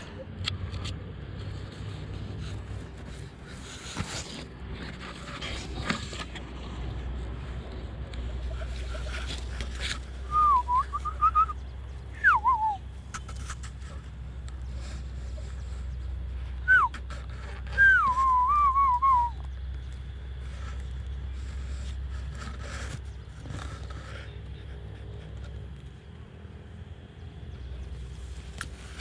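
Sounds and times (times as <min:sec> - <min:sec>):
steady low rumble: 0:00.0 - 0:29.0
person whistling: 0:10.3 - 0:11.6, 0:12.2 - 0:12.8, 0:16.6 - 0:17.0, 0:17.7 - 0:19.4.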